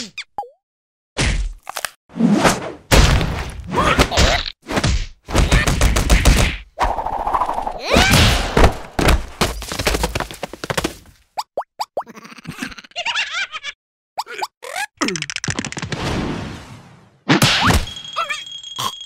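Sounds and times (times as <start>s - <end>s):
cartoon thuds and whacks: 2.4s - 6.6s, 7.8s - 9.4s, 17.3s - 18.0s.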